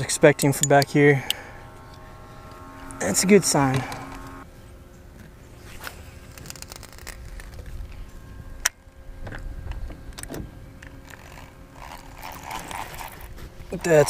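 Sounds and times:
fishing reel whirring: 0.0s - 4.5s, 10.8s - 14.0s
faint steady hum: 0.0s - 14.0s.

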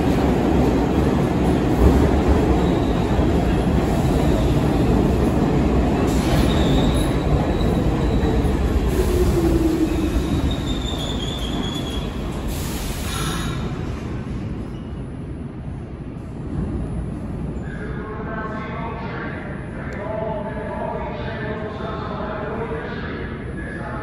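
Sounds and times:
train wheels rumbling on rail: 0.0s - 17.7s
wheel and brake squeals: 6.3s - 8.4s, 9.9s - 12.2s.

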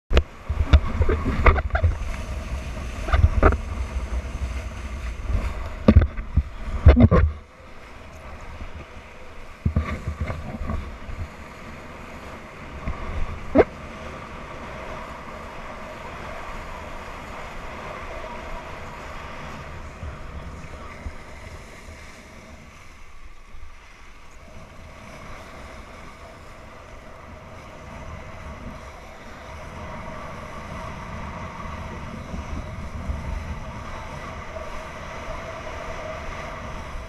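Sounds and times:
wind buffeting microphone: 0.1s - 22.8s, 24.4s - 37.0s
water splashing: 0.1s - 23.0s.

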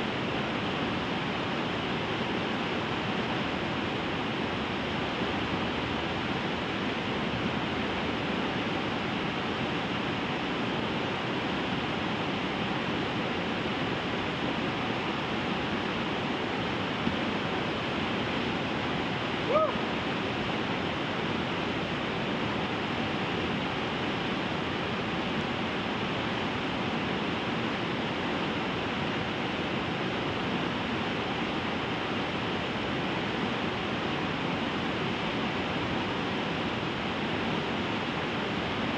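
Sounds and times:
water rushing over rocks: 0.0s - 38.9s
rising high-pitched call: 19.5s - 19.8s.

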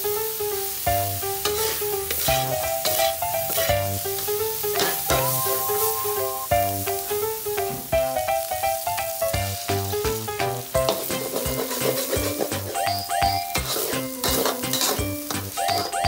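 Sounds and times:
food sizzling in a wok: 0.0s - 16.0s
metal spatula scraping pan: 1.4s - 4.0s, 4.7s - 6.2s, 10.8s - 16.0s
background music with beat: 5.0s - 16.0s.

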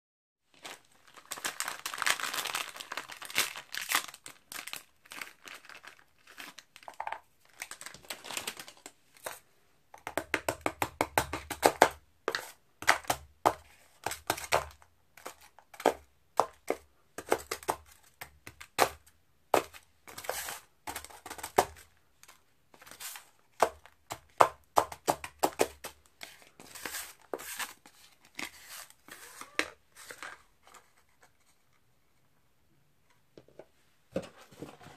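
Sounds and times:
packaging crinkling: 0.5s - 9.0s.

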